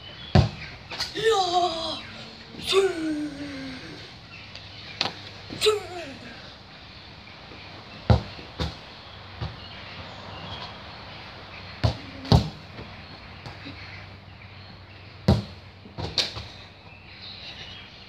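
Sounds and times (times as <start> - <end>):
football thudding on grass: 0.3 - 0.7, 8.1 - 8.8, 11.8 - 12.6, 15.3 - 16.4.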